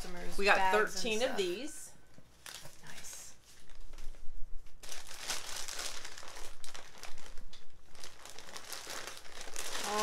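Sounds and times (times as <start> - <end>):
packing material crinkling: 2.3 - 10.0.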